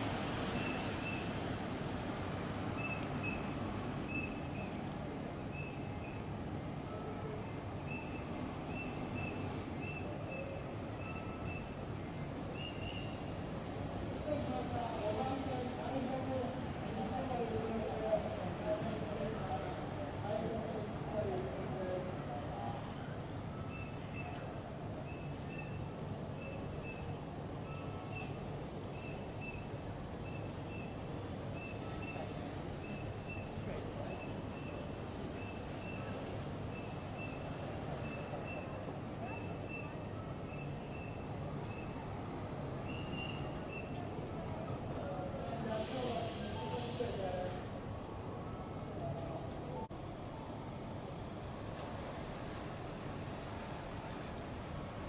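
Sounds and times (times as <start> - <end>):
bus engine rumble: 0.0 - 55.0
bus warning beeper: 5.5 - 11.8, 25.1 - 31.0, 31.6 - 42.0.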